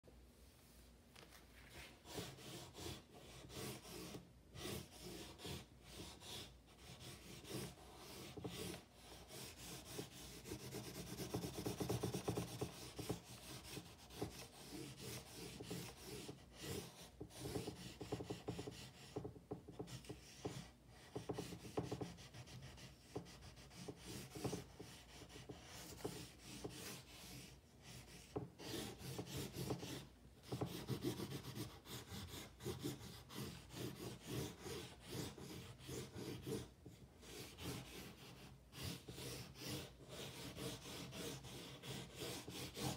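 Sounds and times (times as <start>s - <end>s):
drawing stick scratching paper: 1.6s - 42.9s.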